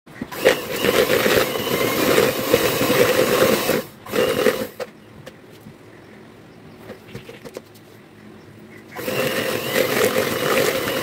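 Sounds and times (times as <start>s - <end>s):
electric hand mixer whirring: 0.3s - 4.8s, 9.0s - 11.0s.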